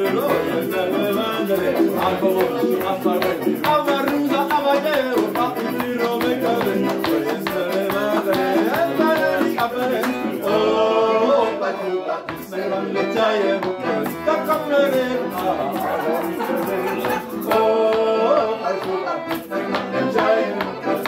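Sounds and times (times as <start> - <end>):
strummed acoustic guitar: 0.0 - 10.6, 13.8 - 18.1
accordion: 0.0 - 21.0
people singing together: 0.0 - 21.0.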